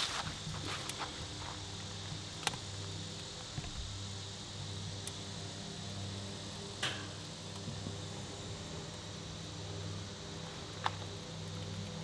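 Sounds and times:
fire crackling pops: 0.0 - 12.0
steady low hum: 0.0 - 12.0.

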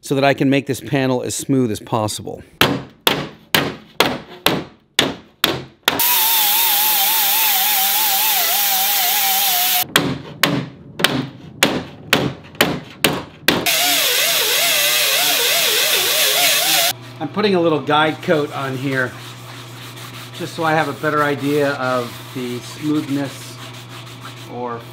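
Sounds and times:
angle grinder whining: 6.0 - 9.8, 13.7 - 17.0.

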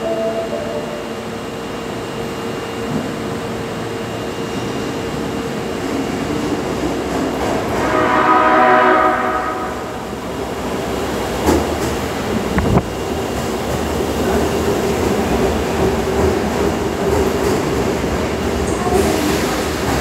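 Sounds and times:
subway train rumbling: 0.0 - 20.0
train horn: 7.6 - 10.1.

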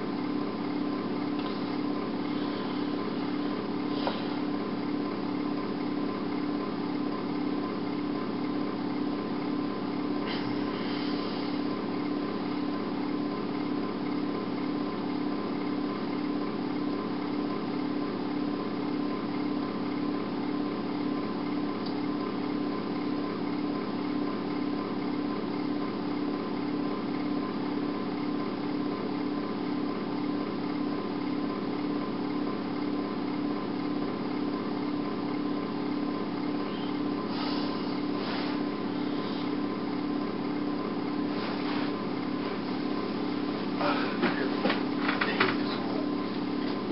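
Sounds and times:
low mechanical hum: 0.0 - 46.9
thin steady whine: 0.0 - 46.9
hiss: 37.3 - 39.4.

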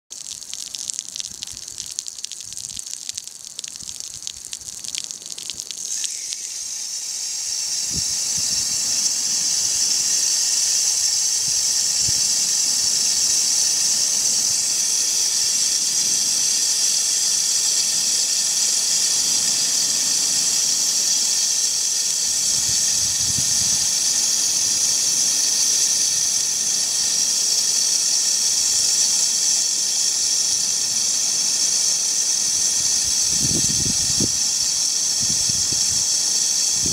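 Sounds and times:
water spattering on glass: 0.1 - 6.5
steady high hiss: 0.1 - 36.9.

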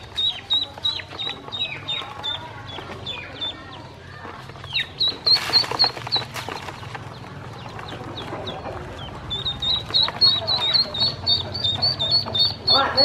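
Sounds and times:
ducklings peeping: 0.0 - 13.0
feet scrabbling in plastic basin: 3.9 - 12.4.

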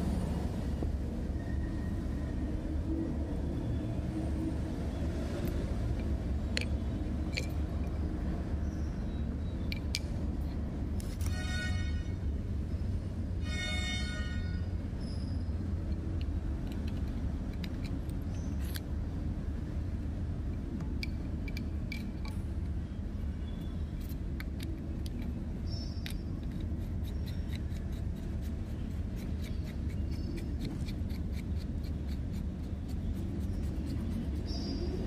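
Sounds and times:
steady low hum: 0.0 - 13.5, 14.2 - 35.0
small metallic clicks: 5.9 - 8.0, 15.8 - 18.9, 20.6 - 22.5, 24.0 - 32.5.

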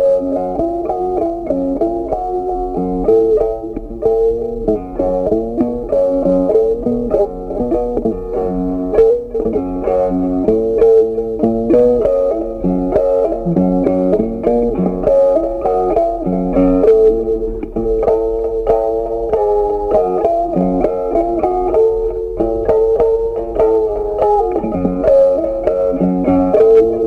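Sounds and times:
plucked guitar melody: 0.0 - 27.0
bass line: 6.7 - 15.2.

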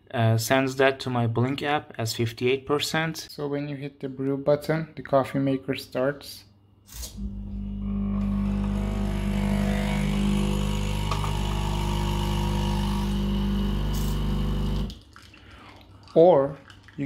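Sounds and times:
coffee machine pump buzzing: 7.0 - 14.9.

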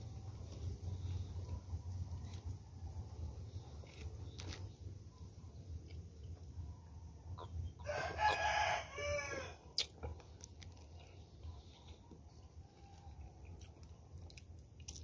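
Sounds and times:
rooster crowing: 7.8 - 9.6, 12.6 - 13.3.

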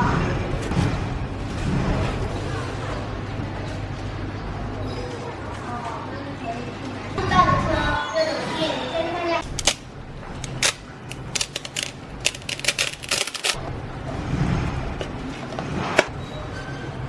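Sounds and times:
hook-and-loop strap crackling: 10.4 - 13.6.

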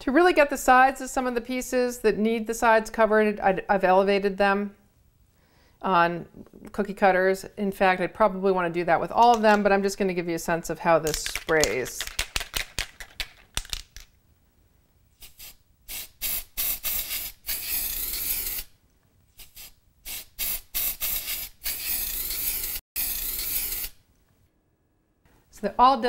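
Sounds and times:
aerosol spray can hissing: 15.2 - 18.7, 19.4 - 24.0.

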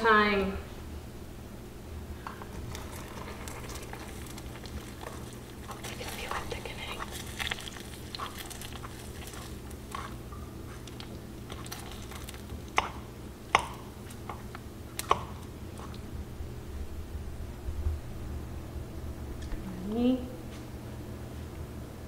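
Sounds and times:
sugar syrup bubbling in a pan: 2.4 - 13.8.

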